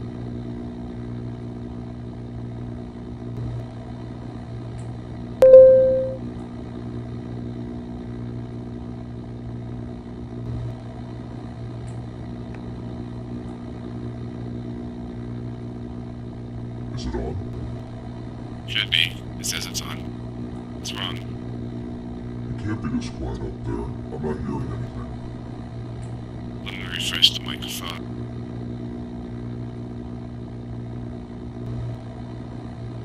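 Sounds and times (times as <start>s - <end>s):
short electronic beep: 5.4s - 6.2s
low electrical hum: 15.2s - 31.4s.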